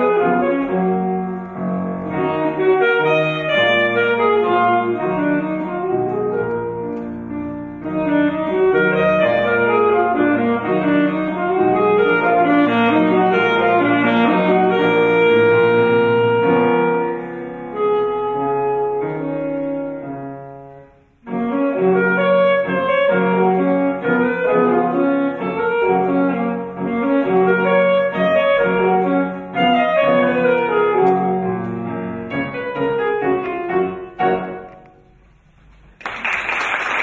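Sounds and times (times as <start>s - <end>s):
alto saxophone and piano waltz: 0.0s - 36.0s
applause: 35.9s - 37.0s.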